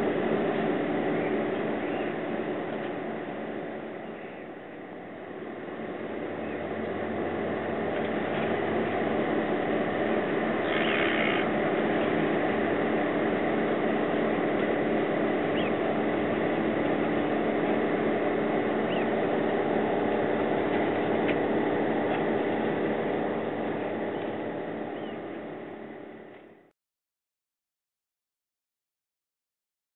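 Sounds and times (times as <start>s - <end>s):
heavy machinery engine drone: 0.0s - 26.7s.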